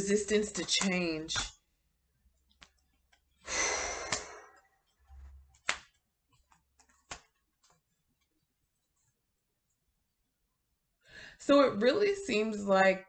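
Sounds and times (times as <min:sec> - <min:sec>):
cards rustling on tabletop: 0:04.8 - 0:09.1
cards tapping on table: 0:05.6 - 0:07.4.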